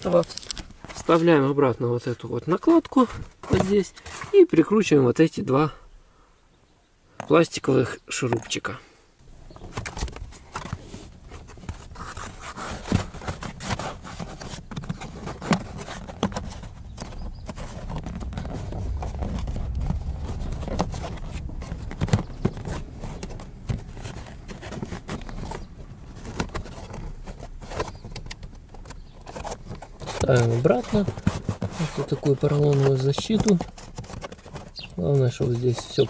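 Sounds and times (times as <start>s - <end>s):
low rumble of handling: 9.2s - 36.0s.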